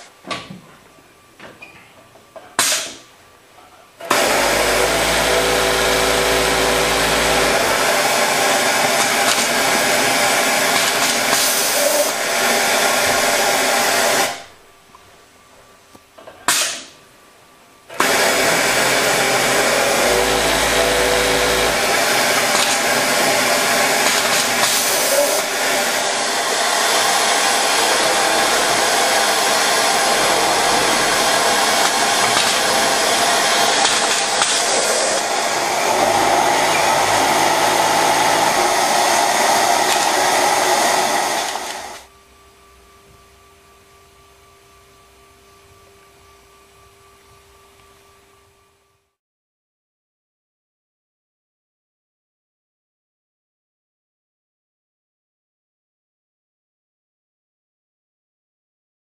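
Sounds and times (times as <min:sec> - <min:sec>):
sewing machine whirring: 0:04.0 - 0:14.5, 0:17.9 - 0:42.1.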